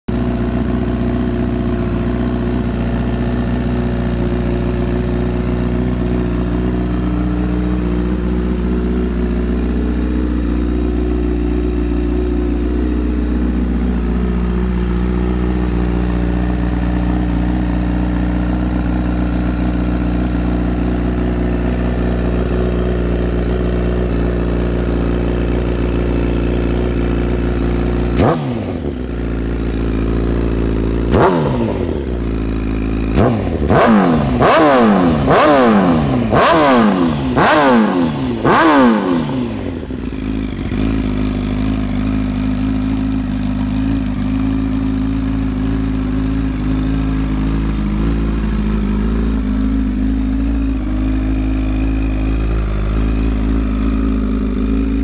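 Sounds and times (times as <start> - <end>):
motorcycle engine idling: 0.1 - 55.0.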